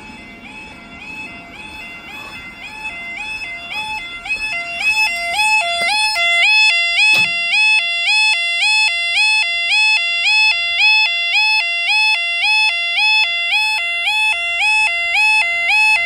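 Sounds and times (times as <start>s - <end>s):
level crossing alarm warbling: 0.0s - 16.0s
sharp knock: 7.1s - 7.5s.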